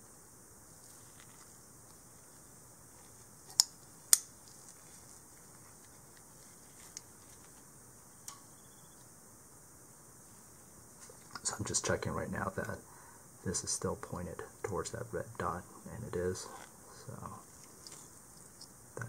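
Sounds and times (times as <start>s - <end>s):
faint metal ticks: 8.2s - 8.5s.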